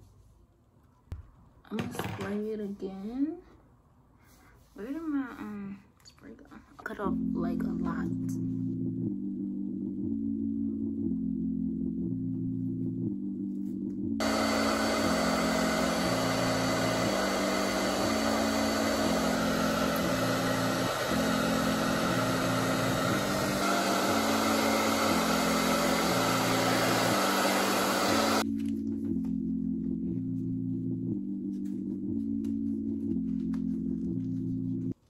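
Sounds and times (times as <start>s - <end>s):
soft background music: 4.4s - 14.2s, 28.4s - 35.0s
hair dryer blowing: 14.2s - 28.4s.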